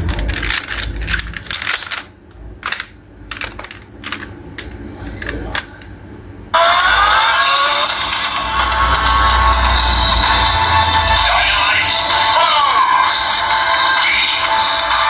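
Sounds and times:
electronic sound with rising tones: 6.6s - 14.0s.

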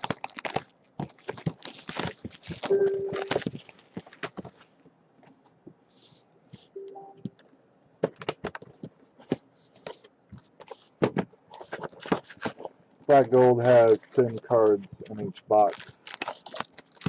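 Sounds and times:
plastic wrap crinkling and tearing: 0.0s - 4.6s, 11.5s - 17.0s.

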